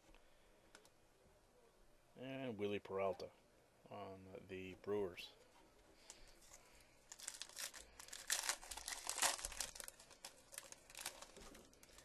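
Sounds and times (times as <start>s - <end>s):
foil wrapper tearing and crinkling: 7.1s - 12.0s.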